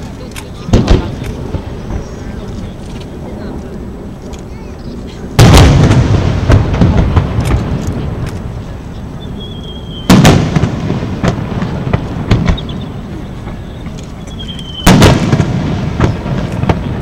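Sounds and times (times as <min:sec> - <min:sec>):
small firework cracks: 0:00.0 - 0:03.8, 0:05.4 - 0:08.6, 0:09.9 - 0:17.0
firework boom: 0:05.4 - 0:08.2, 0:10.0 - 0:14.0, 0:14.7 - 0:17.0
firework whistle: 0:09.0 - 0:10.4, 0:12.4 - 0:15.2.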